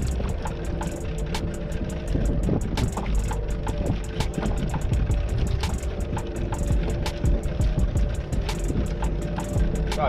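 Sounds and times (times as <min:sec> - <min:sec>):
boat engine rumble: 0:00.0 - 0:10.0
music with quick beat: 0:02.1 - 0:10.0.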